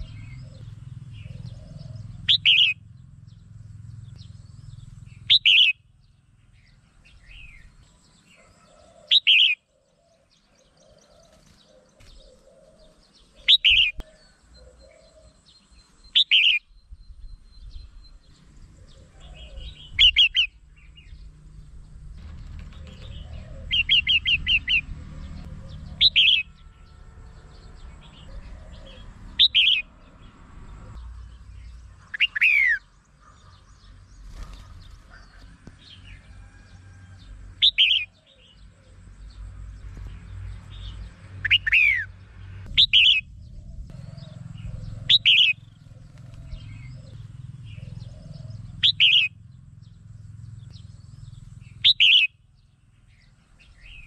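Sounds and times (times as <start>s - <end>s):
bird whistled calls: 16.1s - 17.6s, 41.4s - 42.1s, 42.7s - 43.3s, 44.0s - 45.7s, 47.8s - 49.4s, 51.7s - 52.4s
faint low rumble: 42.2s - 51.9s.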